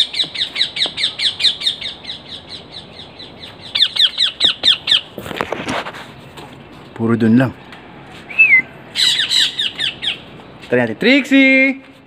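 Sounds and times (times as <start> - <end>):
parrot chirping: 0.0 - 5.2, 8.3 - 10.4.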